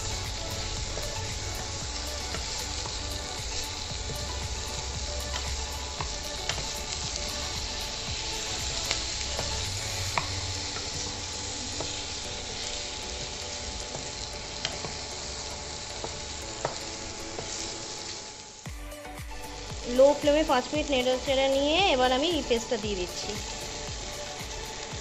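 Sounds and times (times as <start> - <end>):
vegetables sizzling in frying pan: 0.0 - 25.0.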